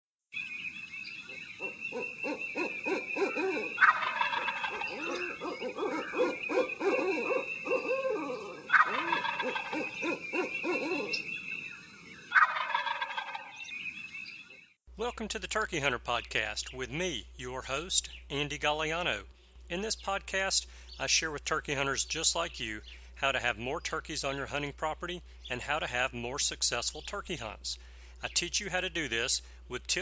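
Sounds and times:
turkey gobbling: 0:01.3 - 0:13.7
turkeys making short calls: 0:01.6 - 0:11.3, 0:12.3 - 0:13.6.

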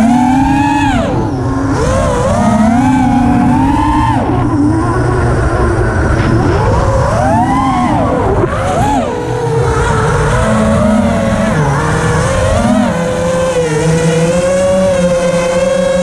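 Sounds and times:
quadcopter motors whining: 0:00.0 - 0:16.0
wind rumble on microphone: 0:00.0 - 0:16.0.

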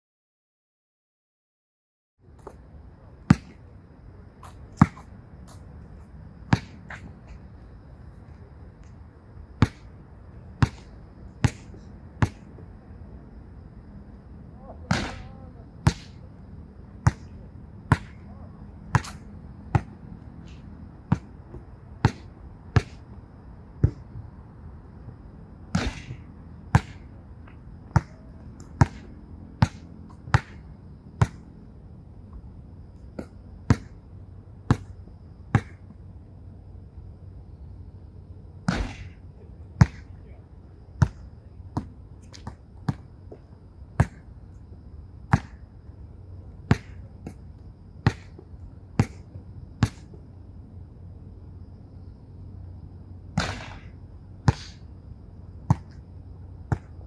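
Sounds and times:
ball striking backboard and rim: 0:10.6 - 0:12.4, 0:14.9 - 0:16.2, 0:17.9 - 0:18.2, 0:18.9 - 0:20.0, 0:22.0 - 0:23.0, 0:25.7 - 0:27.1, 0:28.8 - 0:30.6, 0:35.5 - 0:35.8, 0:38.7 - 0:39.2, 0:39.8 - 0:40.1, 0:44.0 - 0:44.2, 0:45.3 - 0:45.6, 0:46.7 - 0:47.0, 0:48.0 - 0:48.4, 0:53.4 - 0:53.9, 0:54.5 - 0:54.8
basketball bouncing: 0:10.6 - 0:12.4, 0:17.0 - 0:18.2, 0:18.9 - 0:20.0, 0:25.7 - 0:27.0, 0:27.9 - 0:31.4, 0:33.2 - 0:34.0, 0:35.5 - 0:35.8, 0:44.0 - 0:44.3, 0:45.3 - 0:45.6, 0:46.7 - 0:47.4, 0:48.0 - 0:48.4, 0:56.7 - 0:56.9.

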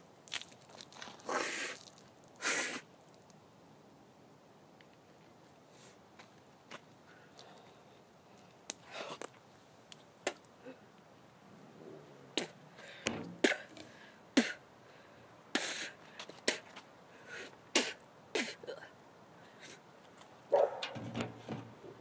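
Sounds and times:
boy coughing and spitting: 0:13.4 - 0:13.7, 0:14.4 - 0:14.6, 0:17.8 - 0:18.8.

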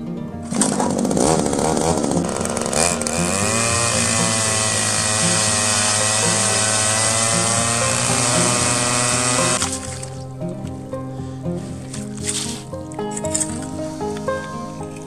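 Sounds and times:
ice auger engine revving: 0:00.4 - 0:10.2.

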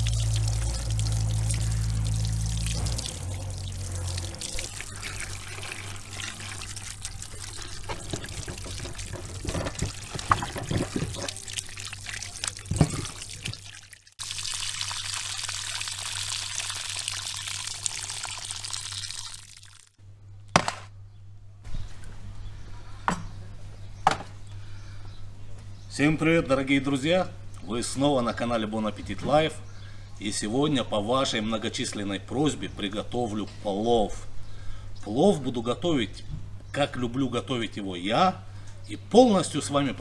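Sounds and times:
vegetables splashing in water: 0:00.0 - 0:19.9
water pouring and trickling: 0:00.0 - 0:20.0.

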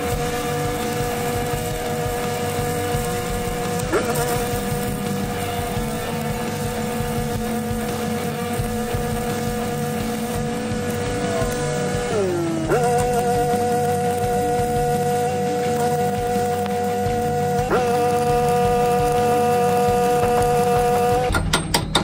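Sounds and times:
welder engine droning: 0:00.0 - 0:22.0
welding arc crackling: 0:00.0 - 0:22.0.

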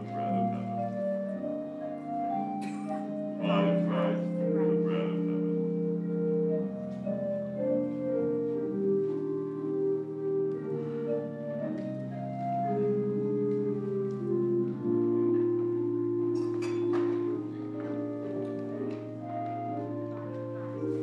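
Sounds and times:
church organ playing chords: 0:00.0 - 0:21.0.

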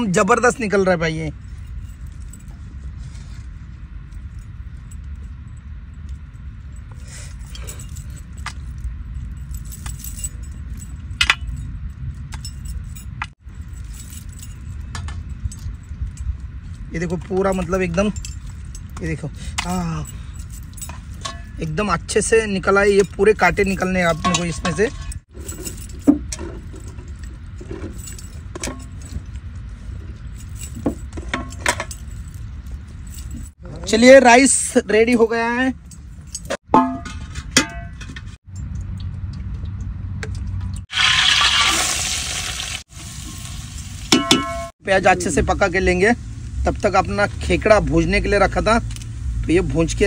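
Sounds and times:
metal jewelry clinking: 0:01.3 - 0:33.6, 0:35.2 - 0:39.1
steady low rumble: 0:44.6 - 0:50.0.

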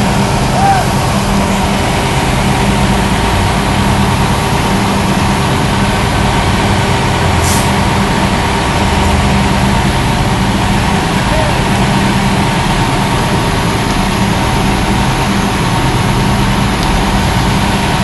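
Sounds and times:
diesel engine drone: 0:00.0 - 0:18.0.

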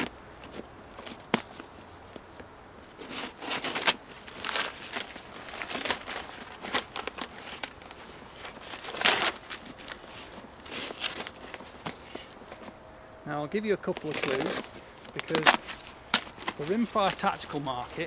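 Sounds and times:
tape and cardboard ripping: 0:02.9 - 0:12.7, 0:13.9 - 0:18.0.

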